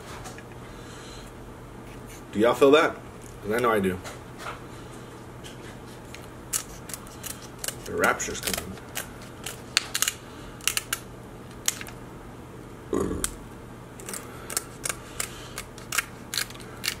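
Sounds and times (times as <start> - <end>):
shears cracking crab shell: 6.1 - 12.0, 14.0 - 17.0.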